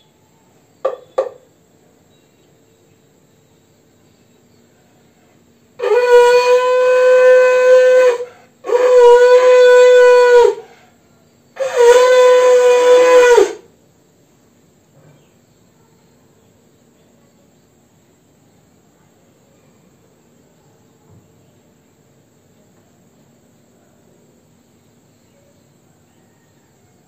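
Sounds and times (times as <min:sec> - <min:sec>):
conch shell blasts: 0:05.8 - 0:10.6, 0:11.6 - 0:13.6.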